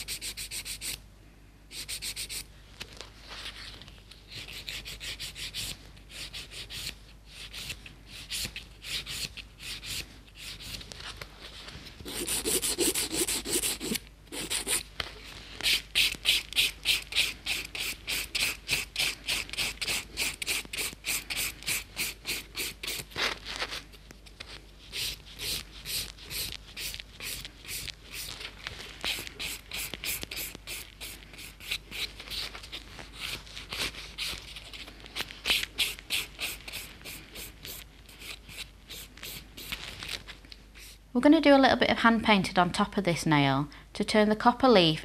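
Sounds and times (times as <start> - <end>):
nail file rasping: 0.0 - 1.0, 1.7 - 2.4, 4.3 - 10.8, 12.0 - 14.8, 15.6 - 23.1, 24.9 - 28.4, 29.0 - 39.8.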